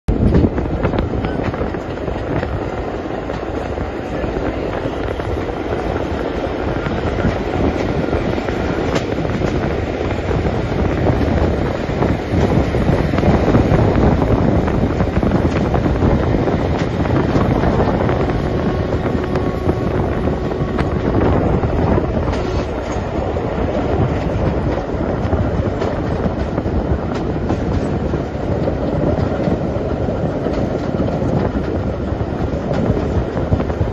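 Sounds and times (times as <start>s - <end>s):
rail clicks: 0.1s - 33.9s
train wheels rumbling on track: 0.1s - 33.9s.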